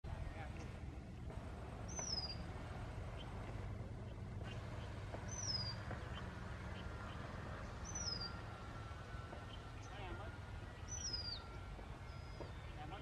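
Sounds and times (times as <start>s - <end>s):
low background rumble: 0.0s - 13.0s
bird whistling downward note: 1.9s - 2.5s, 5.2s - 13.0s.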